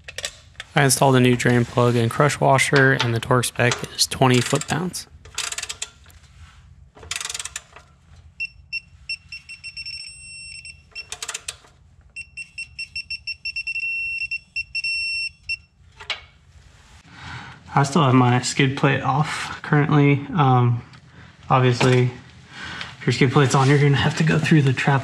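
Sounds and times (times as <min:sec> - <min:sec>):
wrench rattling: 0:03.7 - 0:06.2, 0:07.0 - 0:08.0, 0:10.9 - 0:11.8
torque wrench beeping: 0:08.4 - 0:11.5, 0:12.2 - 0:15.7.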